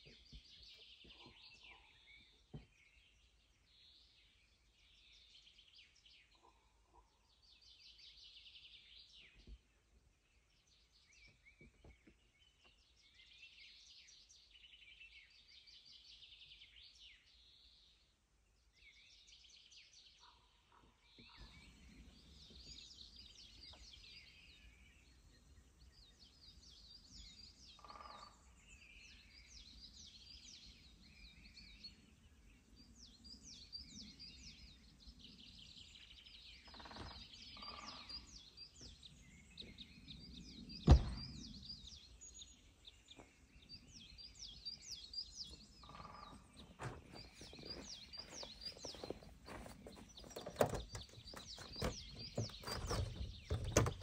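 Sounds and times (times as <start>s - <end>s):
birds chirping and singing: 21.0s - 54.0s
sharp knock: 40.9s - 41.3s.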